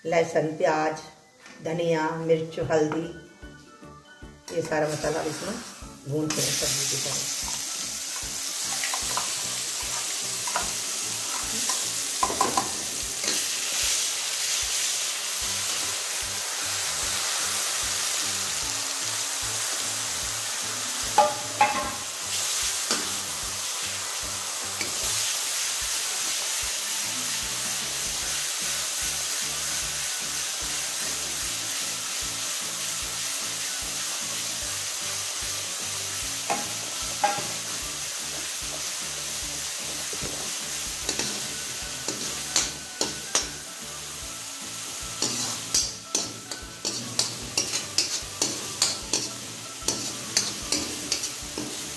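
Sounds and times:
spices sizzling in oil: 4.5 - 51.9
metal spoon scraping pan: 45.2 - 51.8.

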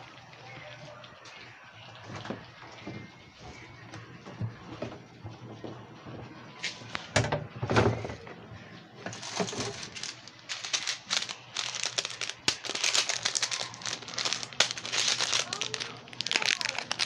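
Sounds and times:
crinkling and crackling: 9.0 - 17.0.

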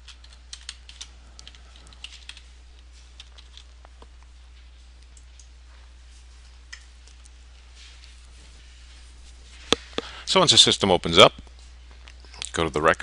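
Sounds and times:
computer keyboard typing: 0.0 - 2.4, 3.2 - 3.6
steady low hum: 0.0 - 13.0.

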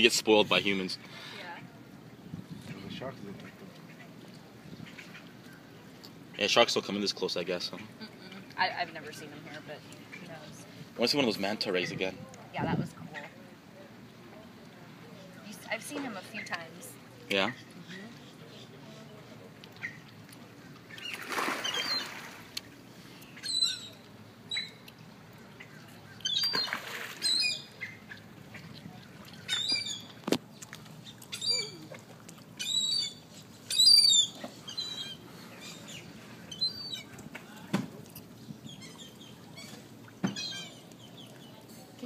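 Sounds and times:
seabirds squawking: 19.8 - 22.4, 23.2 - 24.9, 25.5 - 31.9, 32.5 - 37.2, 38.4 - 41.3.

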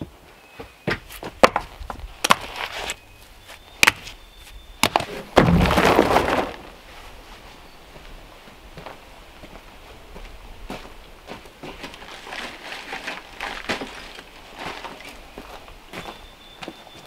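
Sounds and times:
stones clacking: 1.3 - 3.0
rubble scraping and settling: 4.8 - 6.9.

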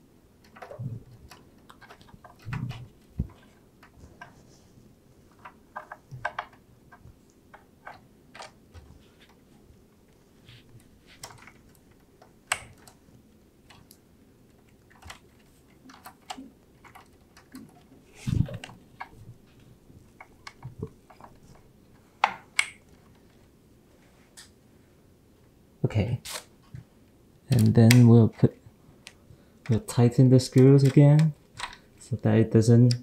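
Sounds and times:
plastic connectors clicking: 29.0 - 31.8.

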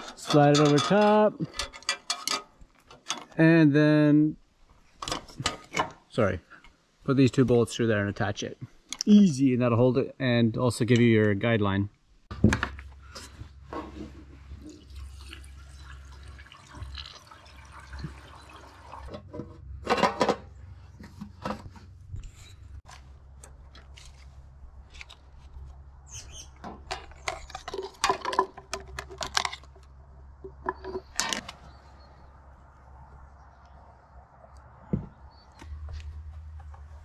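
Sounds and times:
gasoline pouring into tank: 14.6 - 19.3.

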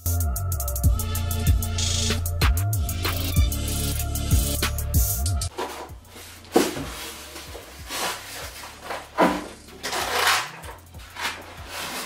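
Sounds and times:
foam pieces scraping and rubbing: 5.5 - 12.0
styrofoam bumping on table: 6.5 - 7.2.

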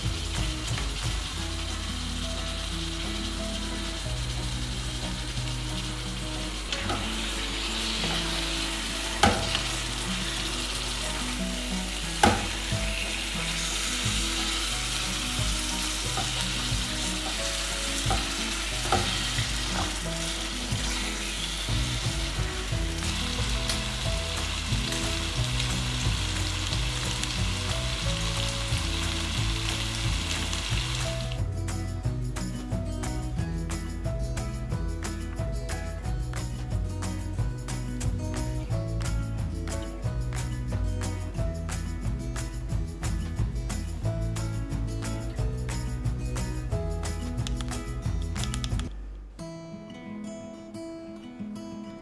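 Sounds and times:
beef sizzling in a pan: 0.0 - 31.5
sharp knocks against pan: 9.2 - 9.6, 12.2 - 12.6, 18.0 - 20.0.

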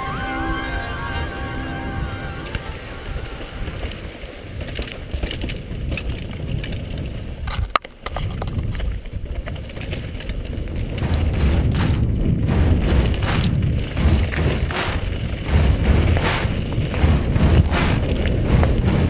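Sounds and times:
bicycle tyre and frame rumble: 3.5 - 14.1.

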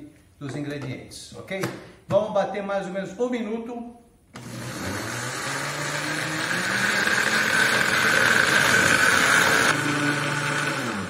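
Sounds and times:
blender motor whining: 4.3 - 11.0.

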